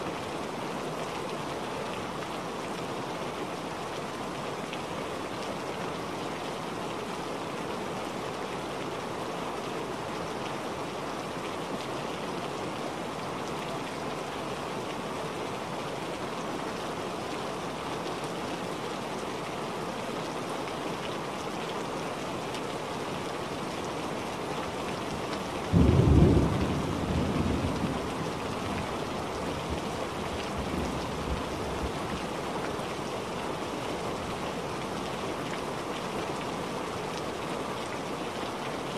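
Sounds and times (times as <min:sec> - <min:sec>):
steady rain falling: 0:00.0 - 0:38.9.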